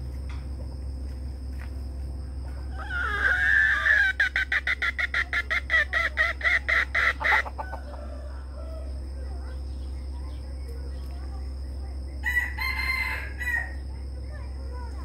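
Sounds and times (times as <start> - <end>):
rooster calling: 2.4 - 9.4, 12.2 - 13.9.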